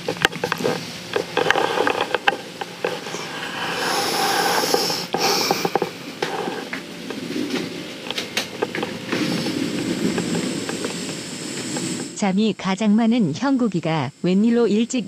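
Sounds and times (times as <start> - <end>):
breathy rush: 1.5 - 12.2.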